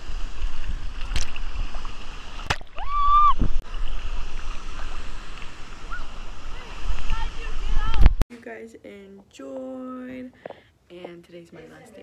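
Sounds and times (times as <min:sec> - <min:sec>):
water sloshing and splashing: 0:00.0 - 0:08.2.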